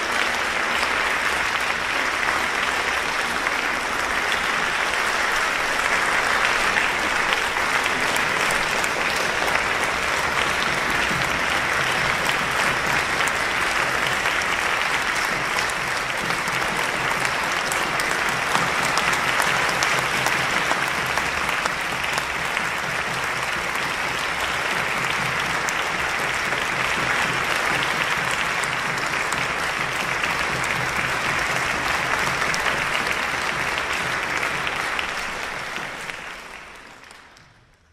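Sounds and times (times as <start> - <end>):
audience applauding: 0.0 - 37.9.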